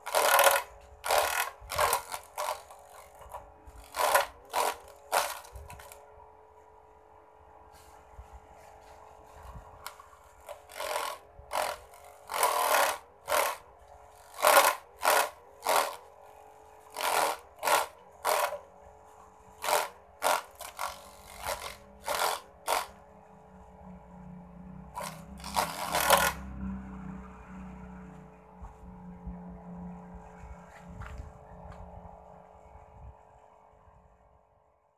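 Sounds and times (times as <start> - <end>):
small motor whining: 0.0 - 34.3
blades shredding grass: 25.0 - 26.7.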